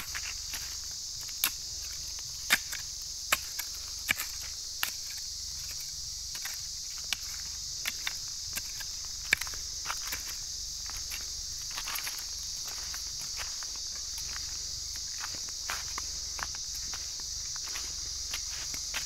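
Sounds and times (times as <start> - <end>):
hoe chopping into dry soil: 0.0 - 11.2
high-pitched insect drone: 0.0 - 19.0.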